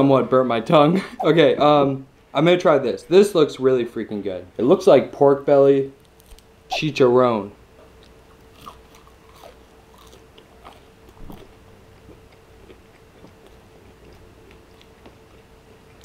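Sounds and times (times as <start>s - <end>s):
person chewing crunchy food: 8.0s - 16.0s.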